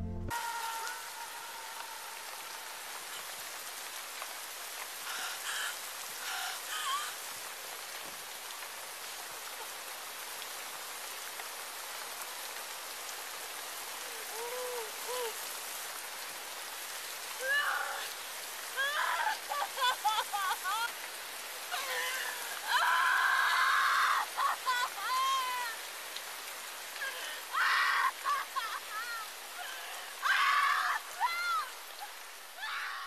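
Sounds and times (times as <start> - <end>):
steady rain falling: 0.0 - 33.0
woman sobbing: 5.1 - 7.3, 14.0 - 15.5, 17.4 - 21.0, 21.6 - 25.9, 27.0 - 33.0.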